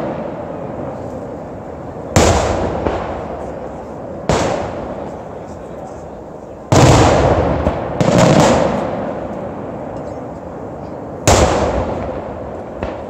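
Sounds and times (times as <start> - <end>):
firework shells booming: 0.0 - 5.7, 6.6 - 13.0.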